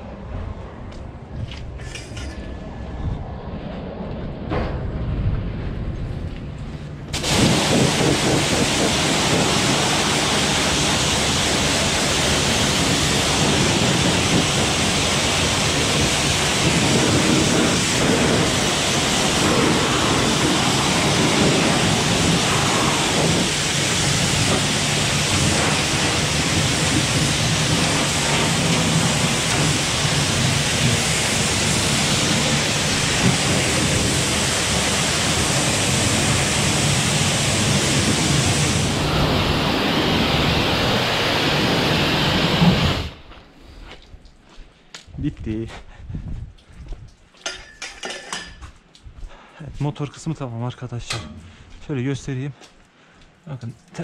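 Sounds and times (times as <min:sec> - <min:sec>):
pressure washer spraying water: 0:07.1 - 0:43.2.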